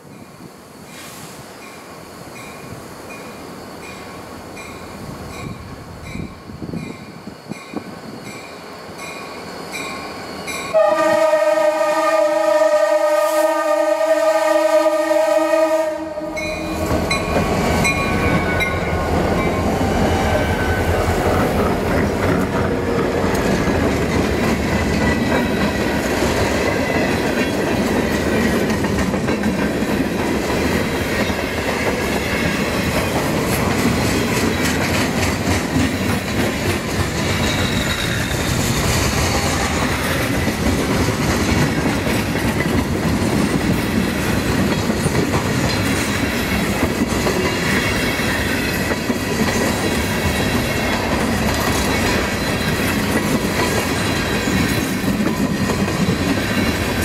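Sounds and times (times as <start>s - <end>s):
diesel train engine: 2.0s - 57.0s
train air horn blast: 10.7s - 16.8s
crossing bell dinging: 16.3s - 19.6s.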